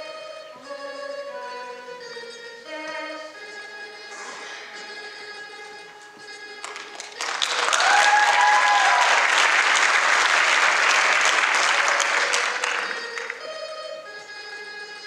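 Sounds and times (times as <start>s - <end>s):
audience applauding: 6.6s - 13.4s.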